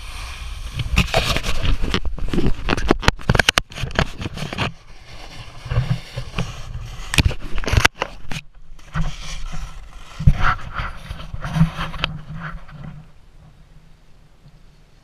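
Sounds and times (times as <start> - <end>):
snowboard scraping over snow: 0.0 - 3.0, 3.7 - 8.2, 8.8 - 13.0.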